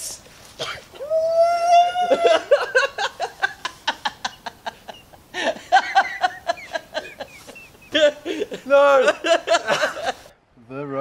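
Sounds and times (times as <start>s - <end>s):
man laughing: 1.7s - 10.3s.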